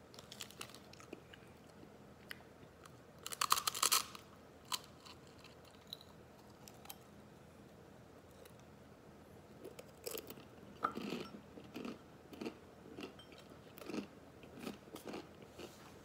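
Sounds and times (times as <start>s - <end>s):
dry noodles crunching: 3.2s - 7.0s.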